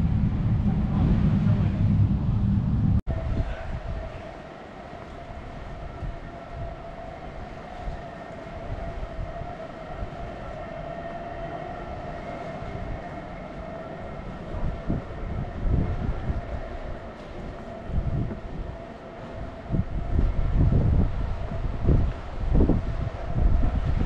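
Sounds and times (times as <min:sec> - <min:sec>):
low rumble: 0:00.0 - 0:04.1
electric train high whine: 0:00.0 - 0:24.0
wind gusts on microphone: 0:00.0 - 0:24.0.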